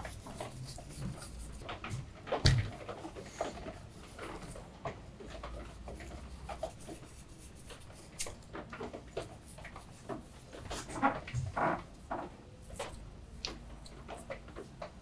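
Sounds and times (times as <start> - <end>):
gloved hands rubbing fish skin: 0.0 - 1.7, 2.8 - 4.6, 5.3 - 8.5, 9.2 - 11.2.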